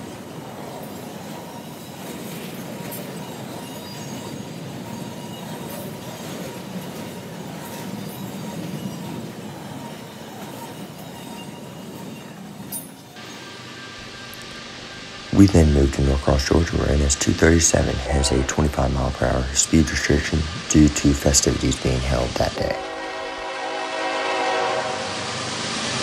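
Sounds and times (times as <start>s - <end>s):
train wheels rumbling on rails: 0.0s - 26.0s
faint wheel squeal: 7.6s - 14.4s.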